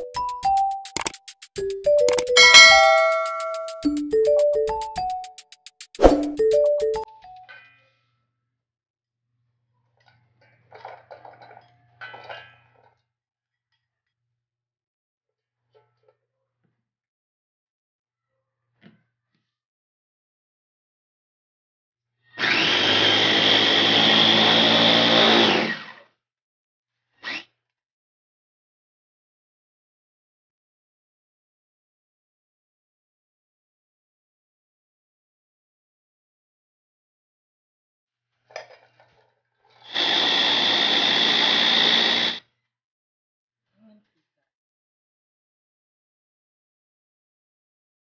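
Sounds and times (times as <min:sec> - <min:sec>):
food chopper motor whining: 0:22.3 - 0:26.0, 0:39.8 - 0:42.4.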